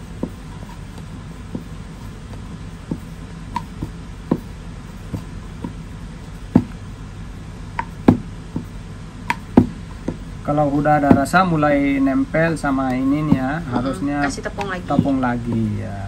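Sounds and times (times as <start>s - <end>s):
low hum: 0.0s - 16.0s
rolling pin knocking on board: 0.1s - 0.8s, 2.8s - 5.8s, 6.5s - 6.8s, 7.8s - 10.2s, 10.9s - 11.5s, 12.9s - 13.6s, 14.6s - 15.8s.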